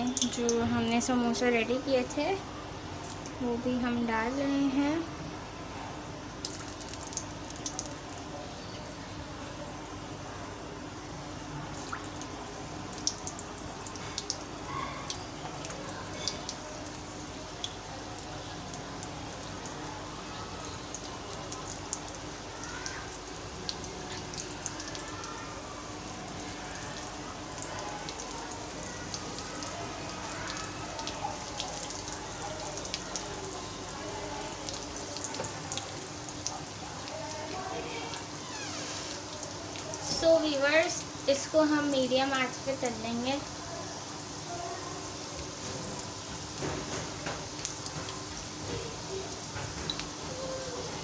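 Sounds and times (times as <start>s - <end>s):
food deep-frying in oil: 0.0s - 51.0s
oil crackles and pops: 3.0s - 3.4s, 6.4s - 9.1s, 11.6s - 41.6s, 45.0s - 51.0s.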